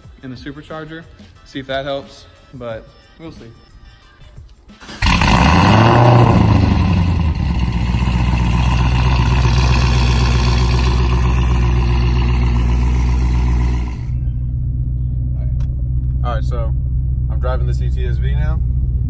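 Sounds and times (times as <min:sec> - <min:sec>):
car engine starting and idling: 0:04.7 - 0:19.0.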